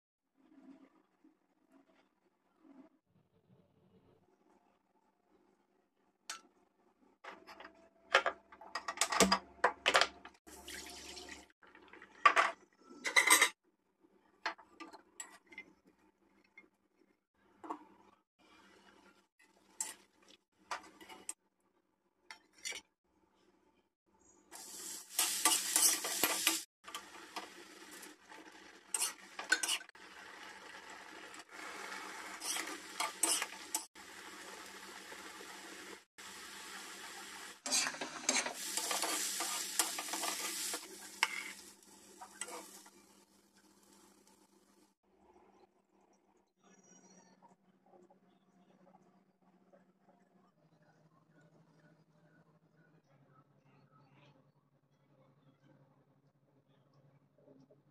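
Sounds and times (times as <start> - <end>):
vegetables sizzling in oil: 24.5 - 44.8
ladle scraping a pan: 25.1 - 26.7, 28.9 - 30.0, 31.6 - 33.9, 37.6 - 43.0.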